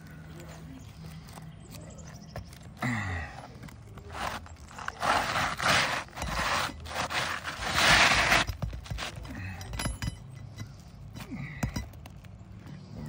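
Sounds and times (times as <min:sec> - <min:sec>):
roofing shingle scraping: 0:03.6 - 0:09.3.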